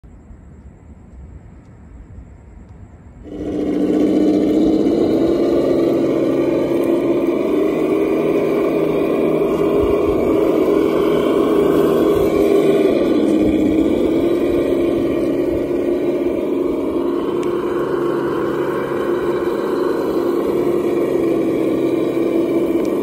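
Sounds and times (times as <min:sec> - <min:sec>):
toy truck motor drone: 0:03.2 - 0:23.0.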